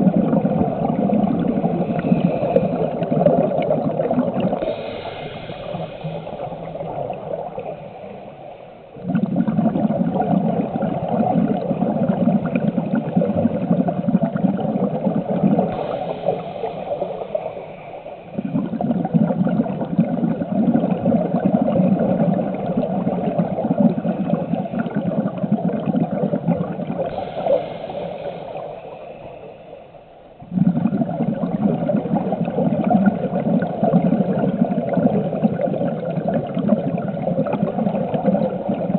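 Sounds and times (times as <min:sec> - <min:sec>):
exhaled bubbles rumbling: 0:00.0 - 0:38.9
hissing regulator inhale: 0:00.8 - 0:03.8, 0:04.4 - 0:09.0, 0:15.7 - 0:18.7, 0:27.0 - 0:30.3.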